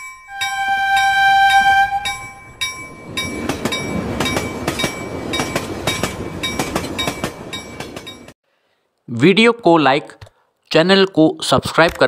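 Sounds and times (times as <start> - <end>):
bell-like chime: 0.0 - 8.2
train rumbling past: 0.3 - 8.4
wheels clacking over rail joints: 2.1 - 8.4.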